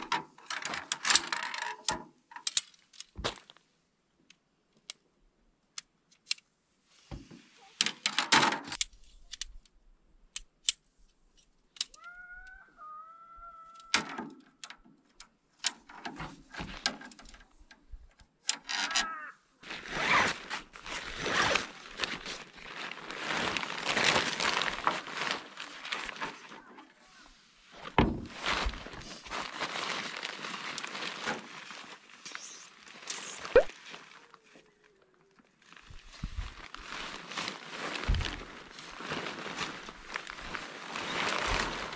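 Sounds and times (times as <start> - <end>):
tent poles clicking together: 0.0 - 3.5, 5.6 - 6.5, 7.8 - 12.6, 13.7 - 26.6, 28.0 - 34.2, 35.7 - 41.9
nylon fabric rustling: 19.6 - 26.6, 27.6 - 34.3, 35.6 - 41.9.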